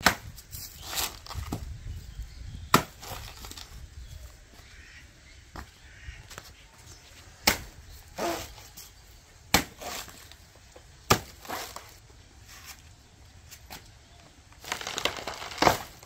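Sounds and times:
machete chopping banana trunk: 0:00.0 - 0:01.6, 0:02.7 - 0:03.6, 0:07.4 - 0:08.6, 0:09.5 - 0:10.4, 0:11.0 - 0:12.0, 0:14.6 - 0:16.0.

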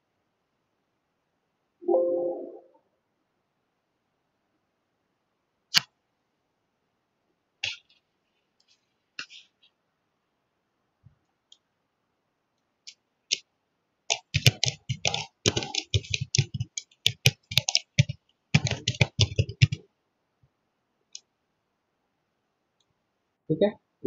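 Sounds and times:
keyboard typing: 0:14.1 - 0:19.8.

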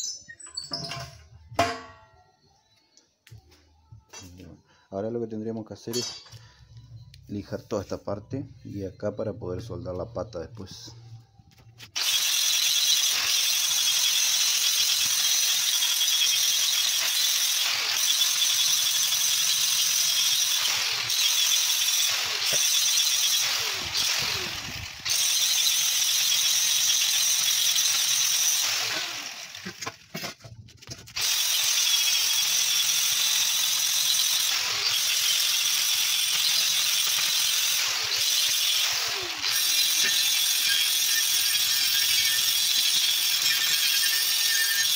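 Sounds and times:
angle grinder grinding metal: 0:11.9 - 0:44.9.

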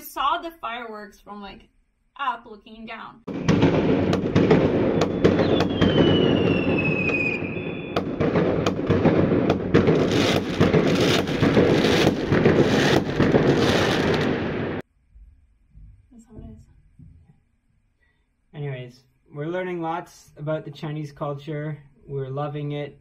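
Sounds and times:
fireworks bangs and crackling: 0:03.3 - 0:14.8
whistling firework: 0:03.3 - 0:14.8.

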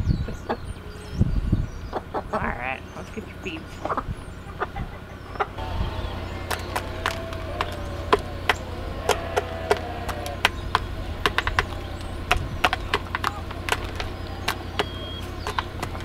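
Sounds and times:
hen clucking: 0:01.8 - 0:16.0
beak tapping on plastic: 0:06.4 - 0:16.0.

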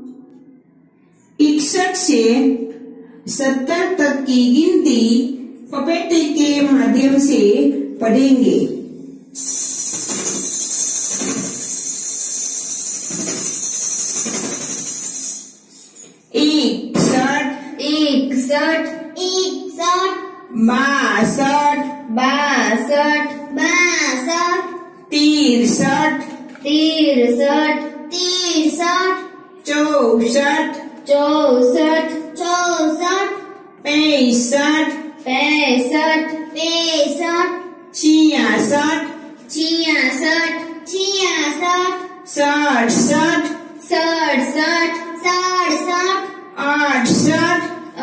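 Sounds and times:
child singing a counting rhyme: 0:16.4 - 0:48.0.

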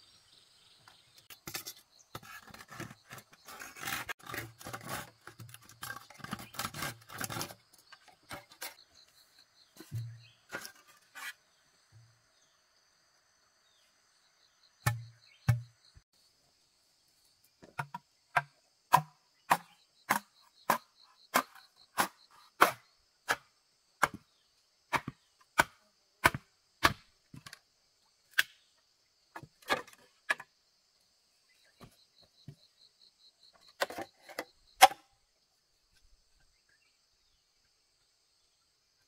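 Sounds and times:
tool striking wood: 0:14.8 - 0:15.7, 0:17.8 - 0:23.4.

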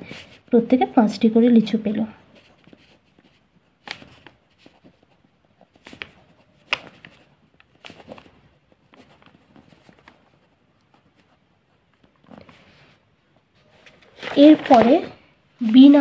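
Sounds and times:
pen scratching on paper: 0:02.2 - 0:12.6.

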